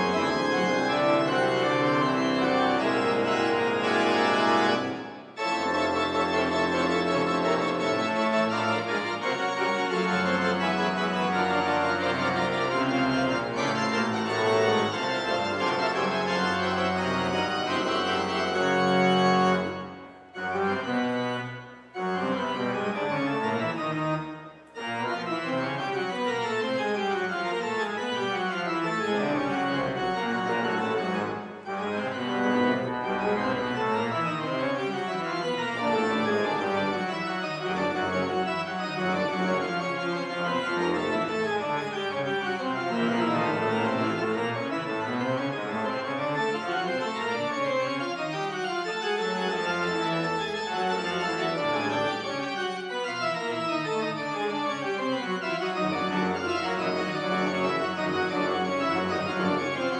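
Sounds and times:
pipe organ playing: 0:00.0 - 0:59.9.

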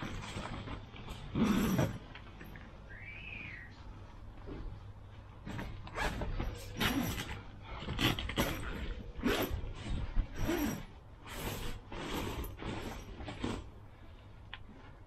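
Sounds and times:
tent frame creaking and clicking: 0:00.0 - 0:02.7, 0:05.4 - 0:13.8
fabric rustling: 0:00.0 - 0:02.8.

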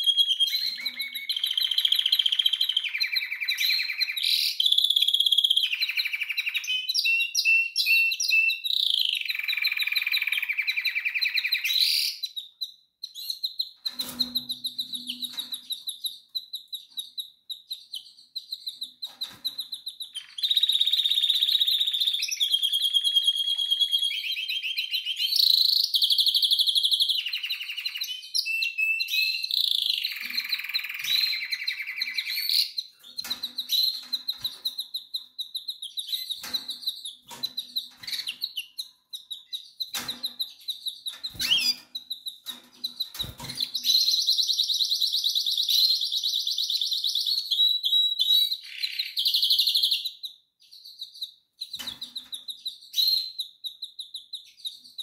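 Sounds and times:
canary singing trills: 0:00.0 - 0:55.0.

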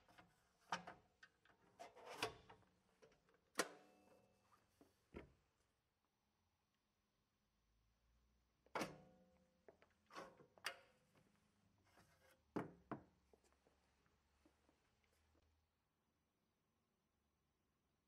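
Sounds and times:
knocks and scrapes on metal frame: 0:01.8 - 0:02.5.

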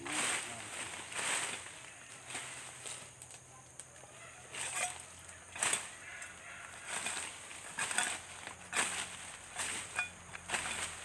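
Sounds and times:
leaves and stems rustling: 0:00.0 - 0:11.0
machete chopping undergrowth: 0:04.5 - 0:06.0, 0:06.8 - 0:11.0.

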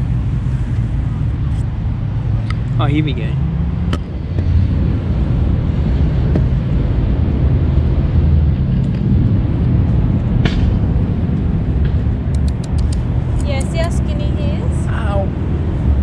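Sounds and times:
city traffic: 0:00.0 - 0:16.0
wind on microphone: 0:03.4 - 0:16.0
sharp click: 0:12.3 - 0:13.0.

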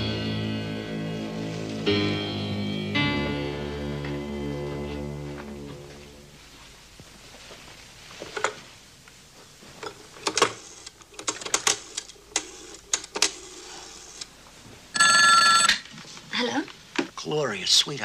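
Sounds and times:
sharp mechanical clicks and clacks: 0:10.2 - 0:14.3.

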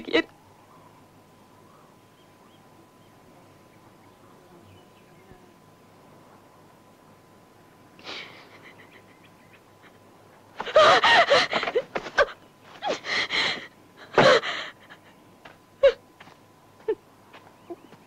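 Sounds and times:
woman gasping and crying: 0:10.6 - 0:15.0, 0:15.8 - 0:16.0.

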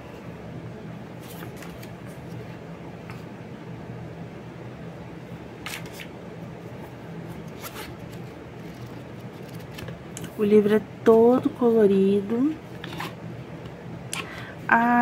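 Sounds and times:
steady low hum: 0:00.0 - 0:15.0
booklet pages riffling: 0:01.2 - 0:02.4, 0:07.4 - 0:10.0
paper rustling: 0:01.2 - 0:02.6, 0:05.6 - 0:06.1, 0:07.3 - 0:10.0.

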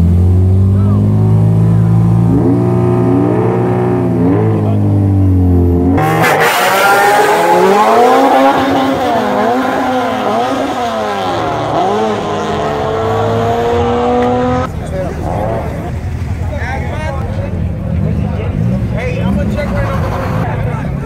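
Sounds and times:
race car engines revving: 0:00.0 - 0:21.0.

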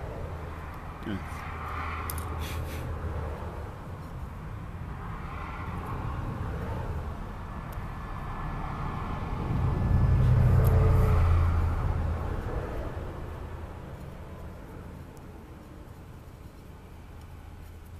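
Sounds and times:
motor vehicle passing: 0:00.0 - 0:17.9.

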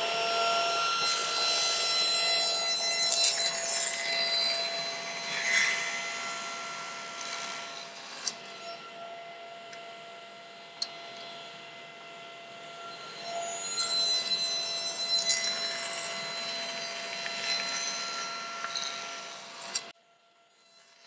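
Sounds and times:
saw cutting wood: 0:00.0 - 0:09.0, 0:12.4 - 0:19.9
table saw blade whine: 0:00.0 - 0:21.0.

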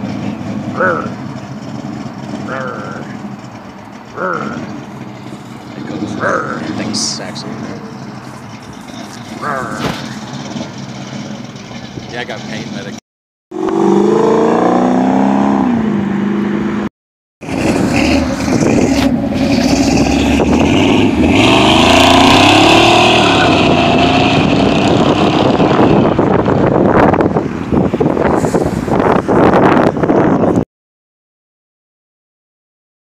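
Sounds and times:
cars accelerating past: 0:13.6 - 0:30.4.

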